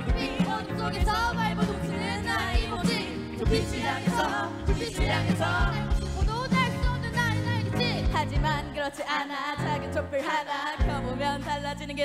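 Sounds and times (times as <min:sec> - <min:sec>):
backing track with drumbeat: 0:00.0 - 0:09.1
woman rapping into a microphone: 0:06.2 - 0:12.0.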